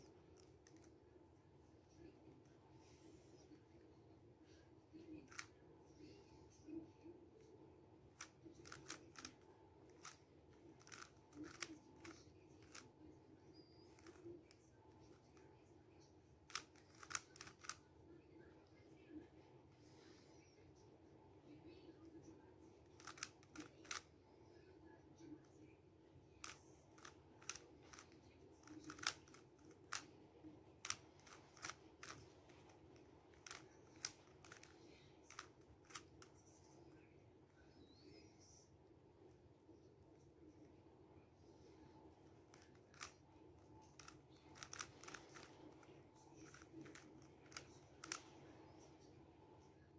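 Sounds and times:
plastic cube clicking: 8.6s - 10.2s, 10.8s - 12.8s, 16.5s - 17.8s, 23.0s - 24.0s, 26.4s - 30.1s, 30.8s - 32.3s, 33.3s - 36.2s, 44.0s - 45.8s.

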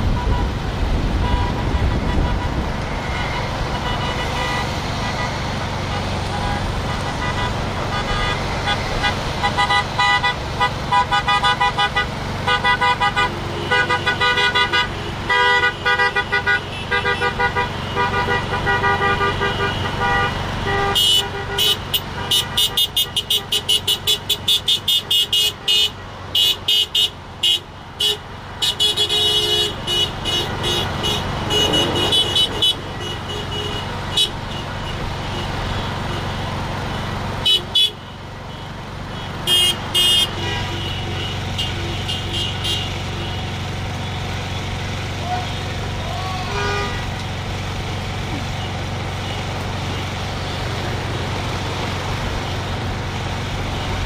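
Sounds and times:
car horns honking: 0.0s - 47.4s, 48.3s - 54.0s
traffic hum: 0.0s - 54.0s
high-pitched horn beeping fast: 6.4s - 35.5s, 46.4s - 47.1s.

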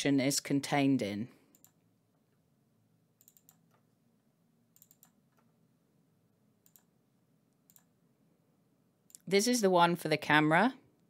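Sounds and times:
faint computer mouse clicks: 1.5s - 1.8s, 3.2s - 3.8s, 4.8s - 5.5s, 6.6s - 6.9s, 7.7s - 7.9s.

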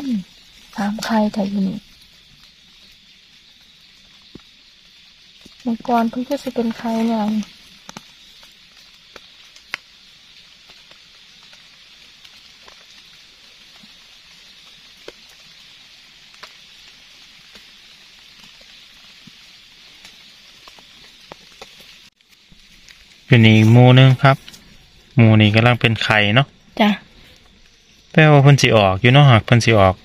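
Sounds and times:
steady high hiss: 0.0s - 30.0s
leaf litter rustling: 5.3s - 25.7s.

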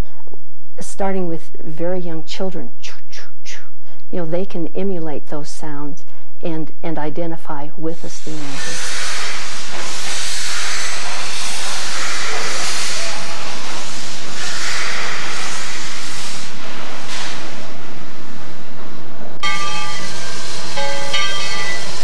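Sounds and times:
steam locomotive venting steam: 8.0s - 22.0s
steady multi-pitched tone: 9.9s - 22.0s.

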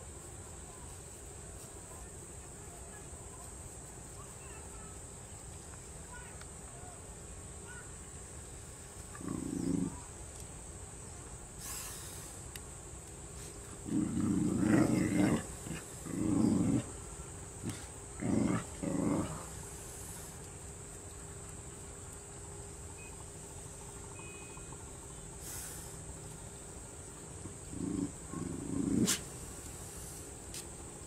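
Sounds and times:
dog growling: 9.1s - 10.0s, 13.8s - 17.0s, 17.6s - 19.6s, 27.5s - 29.3s.

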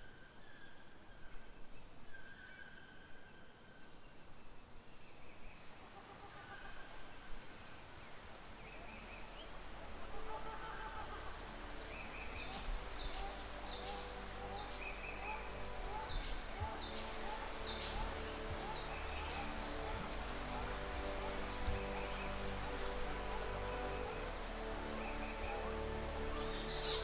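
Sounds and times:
high-pitched insect drone: 6.0s - 27.0s.

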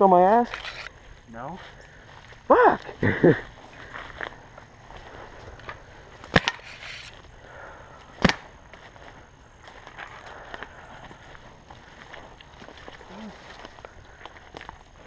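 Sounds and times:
paintball marker shots: 8.2s - 8.5s.

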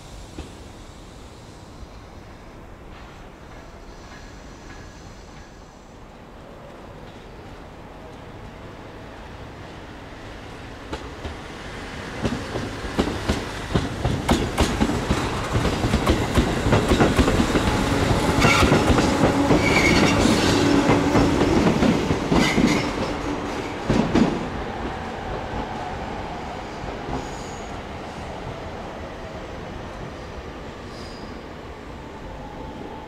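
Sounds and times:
train wheels clicking over rail joints: 2.9s - 5.6s, 12.2s - 24.5s
high wheel squeals: 19.6s - 20.6s.

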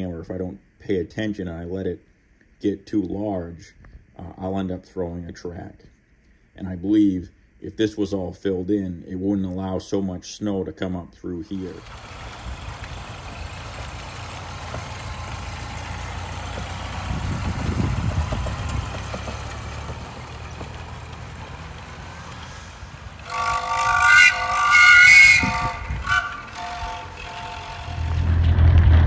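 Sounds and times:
engine low rumble: 11.4s - 29.0s.

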